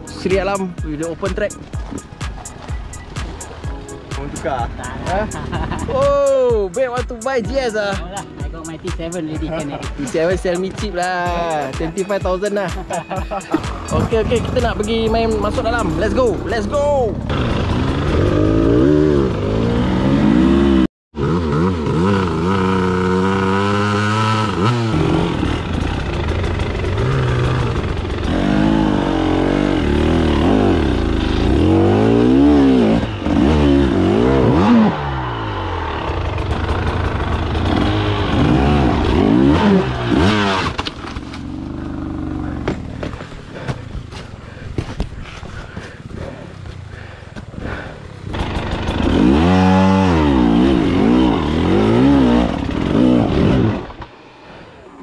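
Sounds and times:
dirt bike engine revving: 12.8s - 43.1s, 47.7s - 54.1s.

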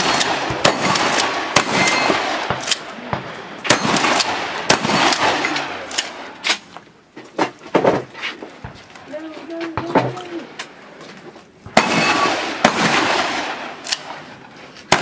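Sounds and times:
shotgun shots echoing: 0.0s - 6.7s, 11.7s - 14.2s.

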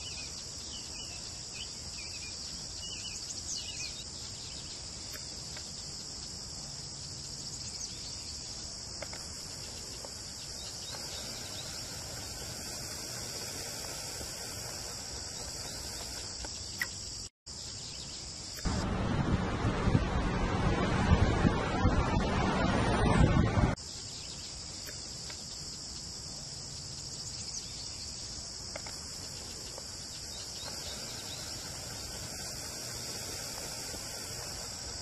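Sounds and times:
bird chirps: 0.0s - 18.8s, 26.7s - 35.0s
insects chorus: 0.0s - 19.4s, 23.7s - 35.0s
loud rushing noise: 18.7s - 23.8s.

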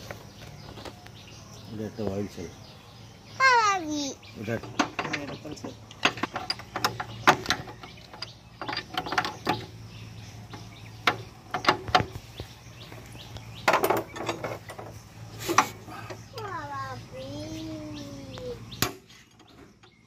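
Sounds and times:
metallic clatter: 4.5s - 9.8s, 13.6s - 15.8s.

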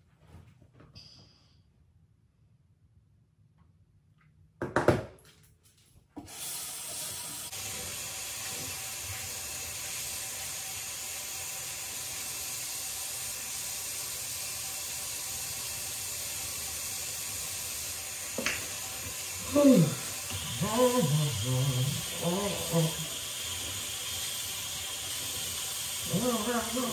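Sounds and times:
faucet running into sink: 6.3s - 26.9s.

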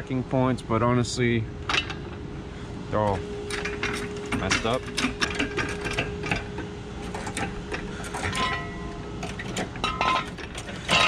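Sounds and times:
metal jack stand clinking: 3.5s - 11.0s.

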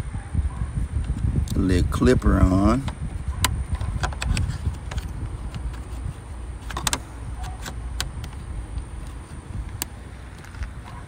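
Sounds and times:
steady low rumble: 0.0s - 11.0s
plastic and metal clicks and scrapes: 2.8s - 11.0s.

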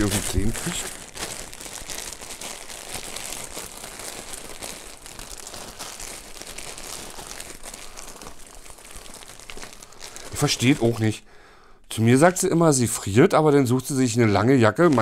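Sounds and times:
plastic packaging crinkling: 0.0s - 11.2s, 14.3s - 15.0s.

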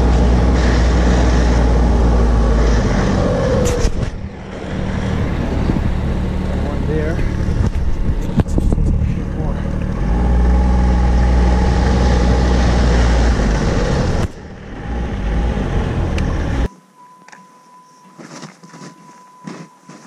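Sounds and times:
snowmobile engine and track rumble: 0.0s - 16.7s
faint footsteps crunching in snow: 18.0s - 20.0s.

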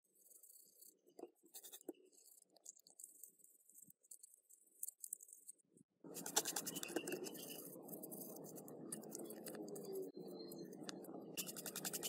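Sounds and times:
screwdriver scraping circuit board: 3.8s - 12.0s.

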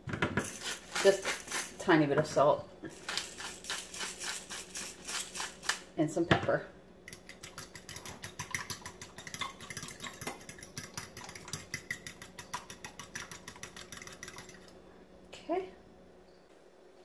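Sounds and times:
fork beating egg in glass bowl: 7.1s - 14.7s.

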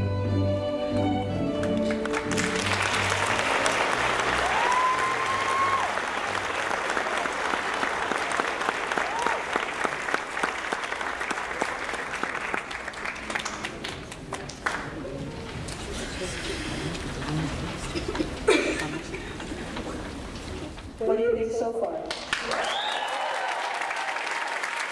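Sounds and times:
audience applauding: 1.6s - 20.4s, 22.1s - 24.9s
high cheer from crowd: 2.3s - 12.8s, 22.3s - 24.9s.

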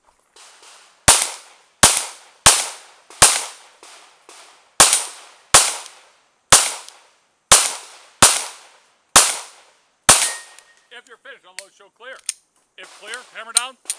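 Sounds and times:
pistol shots: 0.4s - 10.7s.

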